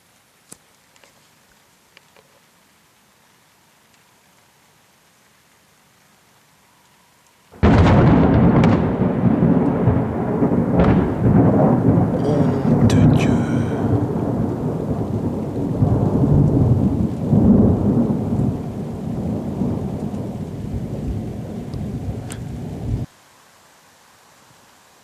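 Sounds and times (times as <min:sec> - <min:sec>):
thunder crack and rumble: 0:07.6 - 0:23.1.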